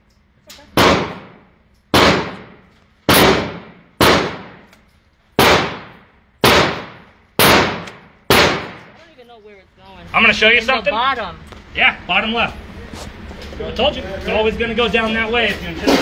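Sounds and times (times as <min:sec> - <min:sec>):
pistol shots echoing indoors: 0:00.7 - 0:04.8, 0:05.4 - 0:09.0.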